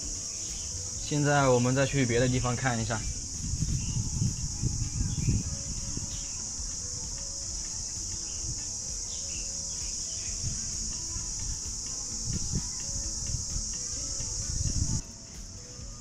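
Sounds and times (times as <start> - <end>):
faint chirps: 0.0 - 16.0
high-pitched insect drone: 0.0 - 16.0
low thumps: 0.0 - 16.0.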